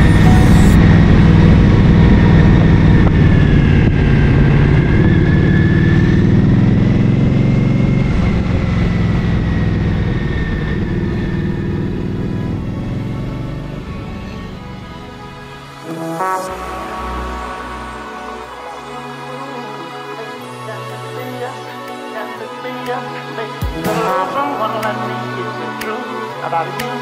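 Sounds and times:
background music: 0.0 - 1.0, 3.4 - 27.0.

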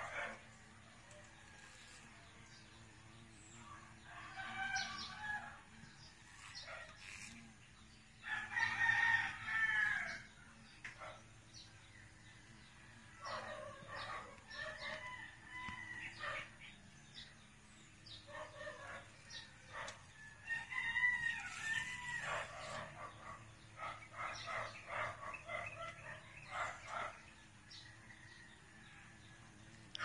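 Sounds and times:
rooster crowing: 4.1 - 5.6, 8.3 - 10.2, 20.2 - 22.8.

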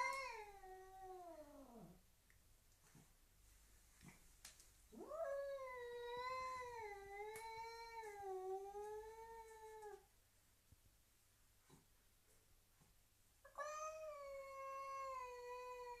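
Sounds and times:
cat yowling: 13.5 - 16.0.

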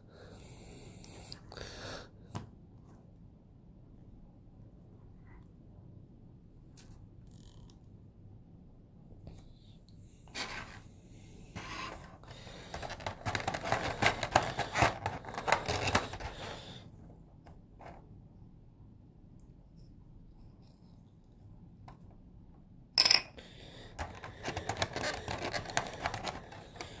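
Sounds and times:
plastic parts rustling: 11.6 - 16.6, 24.0 - 27.0
small plastic clicks and scrapes: 24.0 - 27.0.

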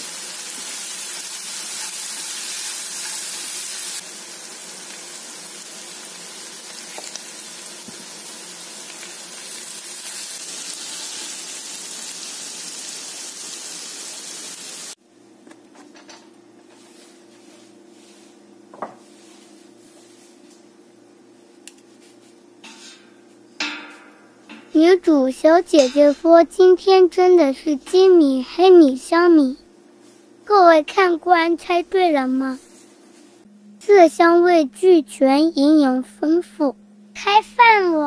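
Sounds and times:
meat sizzling in a skillet: 0.0 - 15.0.

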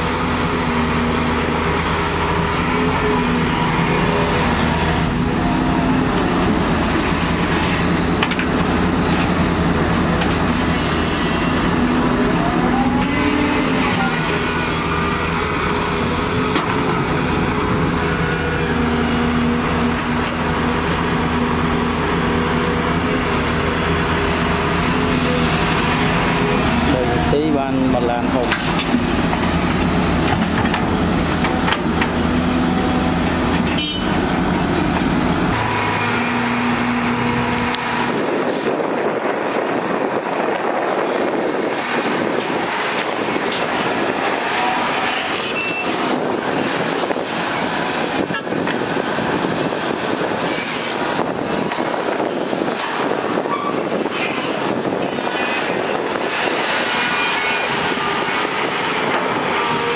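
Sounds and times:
excavator diesel engine under load: 0.0 - 59.9.

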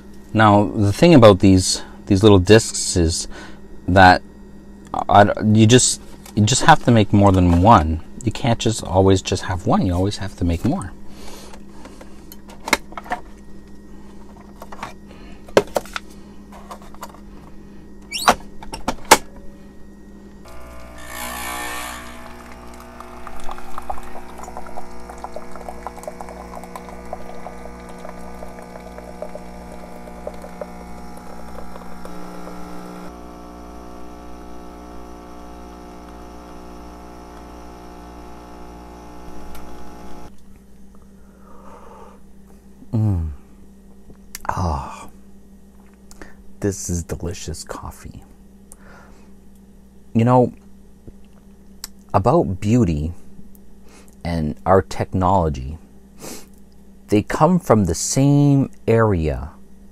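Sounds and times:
coffee machine pump buzzing: 20.4 - 40.4
coffee streaming into mug: 20.5 - 40.3.

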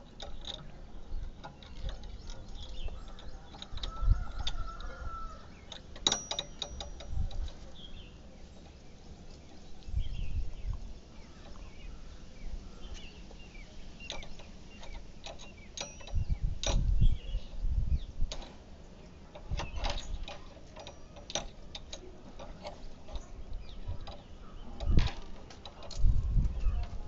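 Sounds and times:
key clicking in padlock: 5.7 - 7.6, 14.1 - 16.8, 19.4 - 23.3.

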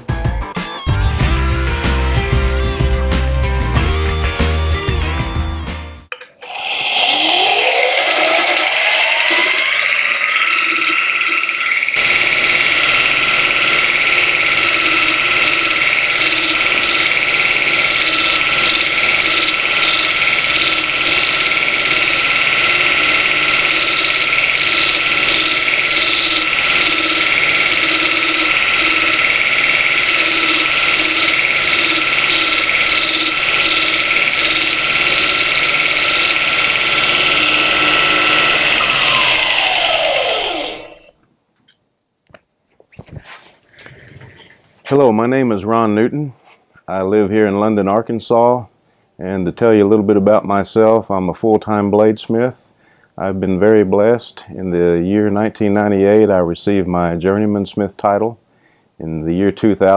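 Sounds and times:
belt grinder motor whine: 6.4 - 41.2
steel grinding on abrasive belt: 6.4 - 41.2.

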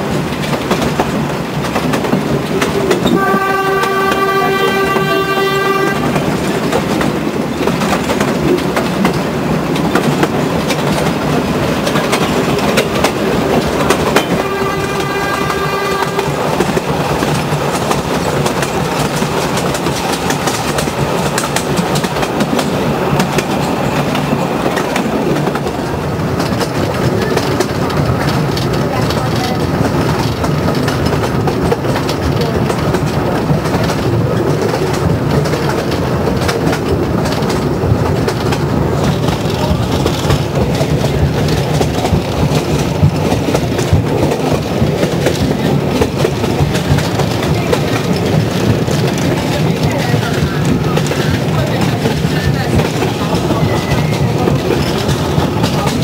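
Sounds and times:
train wheels on rails: 0.0 - 56.0
locomotive horn: 3.0 - 6.4, 14.1 - 16.8.

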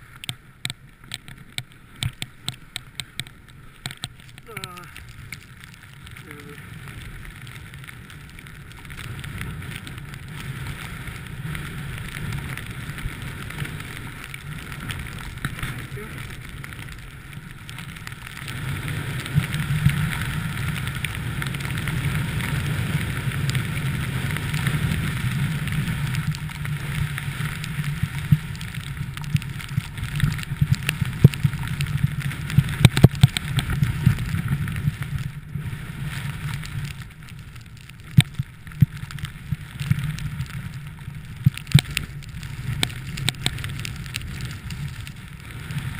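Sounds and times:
snowboard sliding over snow: 0.0 - 45.9.

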